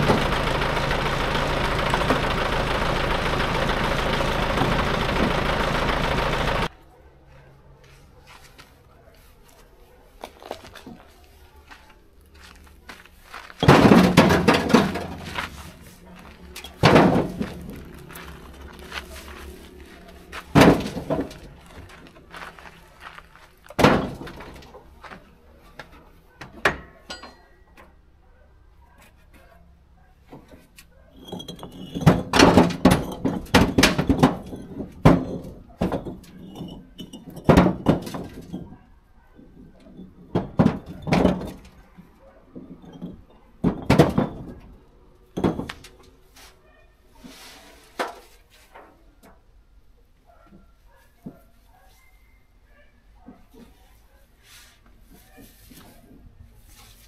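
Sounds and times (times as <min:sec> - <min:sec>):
hard objects knocking and clattering: 0:13.6 - 0:19.0, 0:20.4 - 0:22.3, 0:31.2 - 0:38.8, 0:39.6 - 0:41.8, 0:42.5 - 0:44.7, 0:45.3 - 0:46.0.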